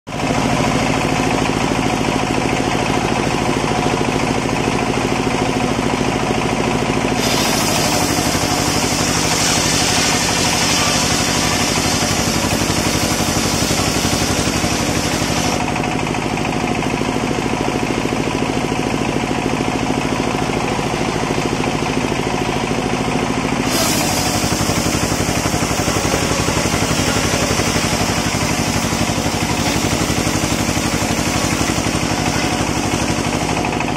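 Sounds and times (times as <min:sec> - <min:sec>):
engine-driven saw mill running: 0:00.1 - 0:33.9
saw blade ripping through log: 0:07.2 - 0:15.6, 0:23.6 - 0:33.4.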